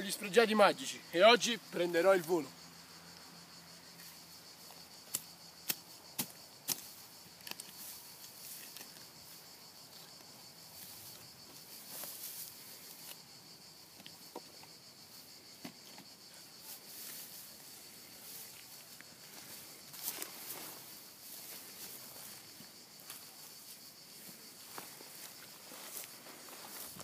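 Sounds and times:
insects chirring: 0.0s - 27.0s
hand tool striking soil: 5.0s - 9.0s
earth scraping and rustling: 6.7s - 10.1s, 10.7s - 13.2s, 15.6s - 27.0s.

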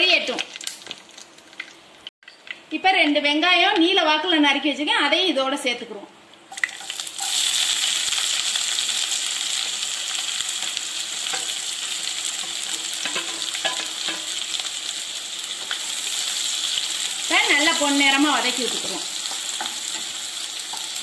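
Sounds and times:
onions sizzling in oil: 6.5s - 21.0s
spatula knocking and scraping pan: 12.4s - 14.4s.

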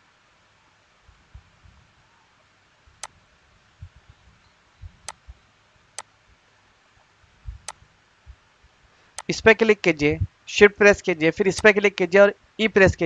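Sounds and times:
faint room hiss: 0.0s - 13.0s
soft low thumps: 3.8s - 5.4s, 7.4s - 8.8s.

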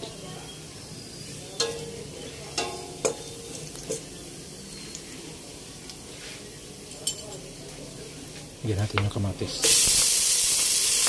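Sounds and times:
garlic sizzling in oil: 9.5s - 11.0s.

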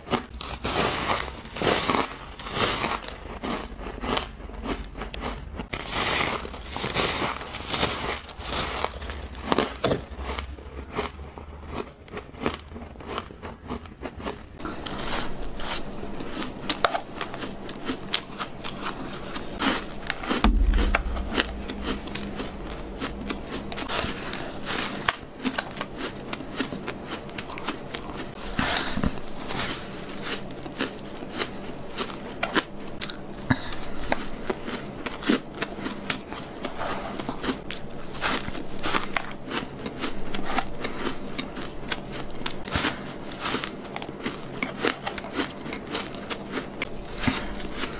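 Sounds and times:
crunching ice: 0.0s - 47.9s
dull low bump: 20.4s - 23.9s.

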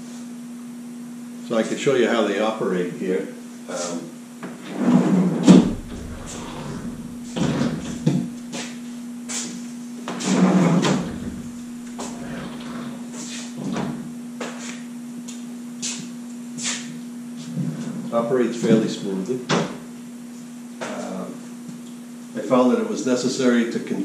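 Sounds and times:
door slides rumbling: 5.4s - 8.6s, 10.5s - 13.0s
wooden doors knocking and clicking: 5.5s - 8.5s, 10.8s - 12.7s
steady low hum: 5.5s - 9.2s, 10.6s - 14.4s.

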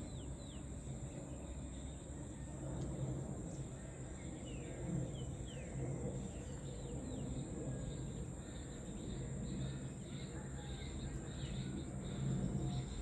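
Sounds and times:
low background rumble: 0.0s - 13.0s
high-pitched insect trill: 6.4s - 13.0s.

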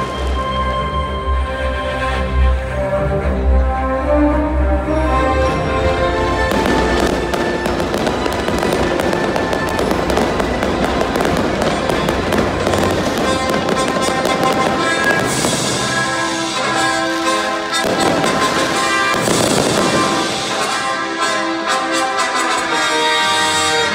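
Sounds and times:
loud music: 0.0s - 23.9s
fireworks cracking and popping: 6.4s - 20.9s.

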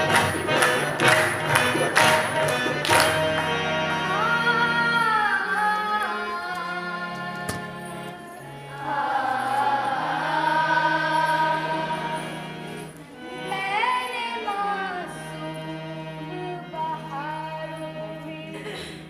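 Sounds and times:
girls singing together: 4.2s - 12.7s.

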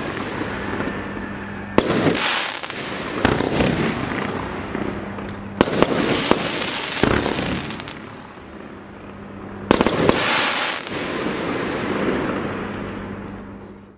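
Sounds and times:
firework bangs: 0.0s - 13.2s
hiss of burning firework tails: 9.7s - 13.1s.

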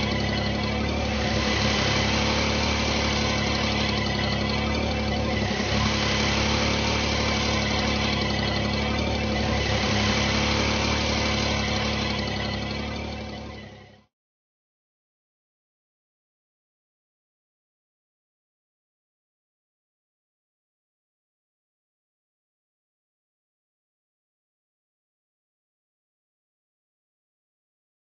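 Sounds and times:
vehicle engine idling: 0.0s - 14.1s.

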